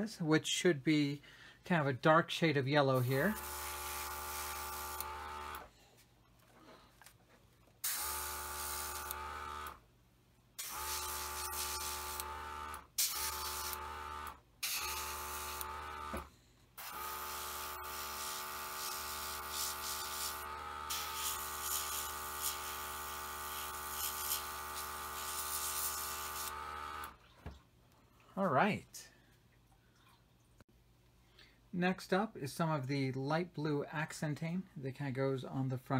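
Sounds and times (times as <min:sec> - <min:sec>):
compressor motor humming: 0:03.0 - 0:05.7, 0:07.8 - 0:09.8, 0:10.6 - 0:27.2.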